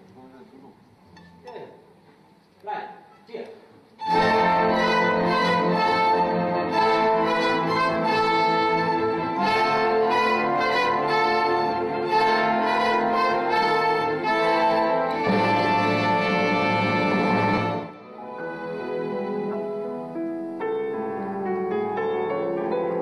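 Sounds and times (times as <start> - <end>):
brass chords: 4.0 - 20.1
orchestra playing held chords: 4.0 - 20.5.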